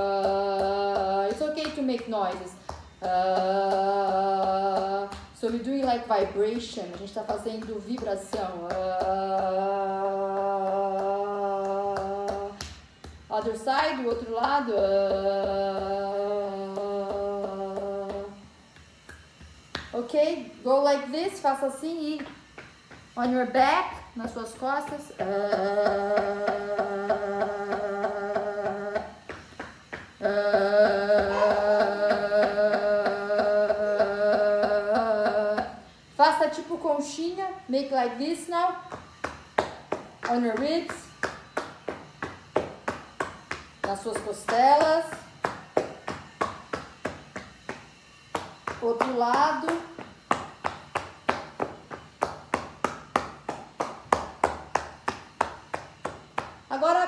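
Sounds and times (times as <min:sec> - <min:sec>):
fists beating on back: 0:00.1 - 0:09.7, 0:38.8 - 0:56.7
hand slaps on ribs: 0:18.7 - 0:20.0
woman holding pulsing note: 0:30.1 - 0:35.6.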